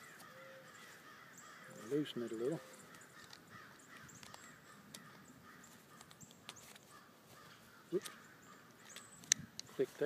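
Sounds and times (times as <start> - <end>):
faint bird calls: 0.0 - 10.0
straps and buckle rustling: 2.6 - 10.0.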